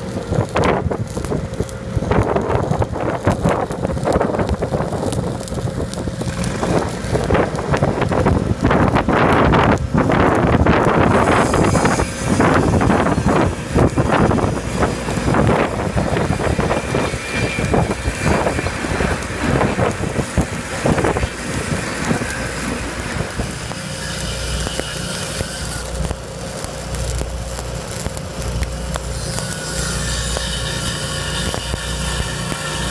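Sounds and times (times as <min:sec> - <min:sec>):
wind on microphone: 0:00.0 - 0:26.2
welding arc crackling: 0:00.0 - 0:32.9
low engine drone: 0:09.8 - 0:29.3.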